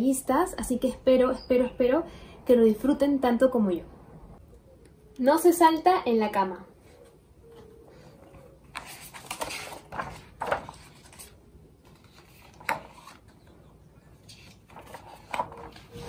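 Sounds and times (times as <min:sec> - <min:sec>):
book pages rustling: 0:06.9 - 0:16.0.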